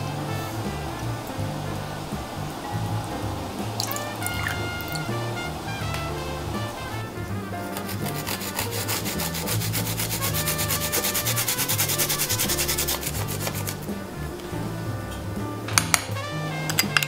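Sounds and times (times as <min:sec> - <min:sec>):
garlic rasping on metal grater: 0:07.7 - 0:13.8.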